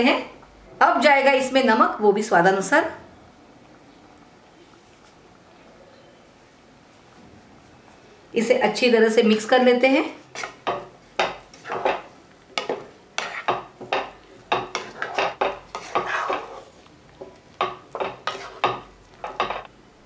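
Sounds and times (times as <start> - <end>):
spatula scraping a pan: 10.2 - 16.8, 17.6 - 19.6.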